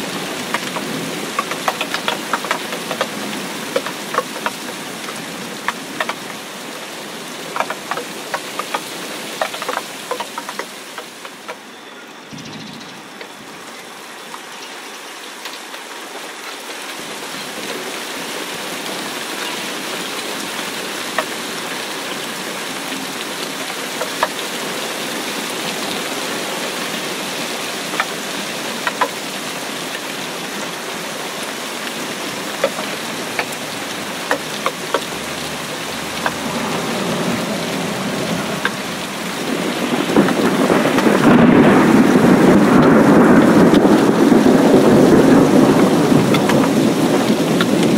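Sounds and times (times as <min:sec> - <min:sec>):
rain pattering into puddle: 0:00.0 - 0:11.7, 0:13.0 - 0:47.9.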